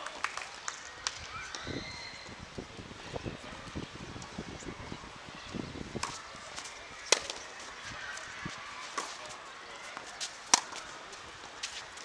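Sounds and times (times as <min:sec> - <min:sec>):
rackets striking tennis ball: 0:06.0 - 0:08.2, 0:08.8 - 0:11.9.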